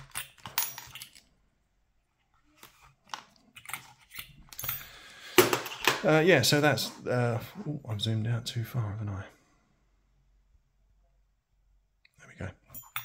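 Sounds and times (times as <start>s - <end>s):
metal lock picks clinking: 0.0s - 1.3s, 3.6s - 5.0s, 12.7s - 13.0s.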